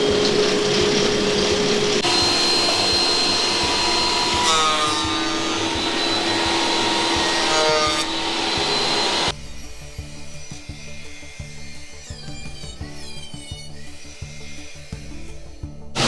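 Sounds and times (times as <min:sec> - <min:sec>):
thickness planer cutting board: 0:00.0 - 0:09.4
background music with steady beat: 0:00.0 - 0:16.0.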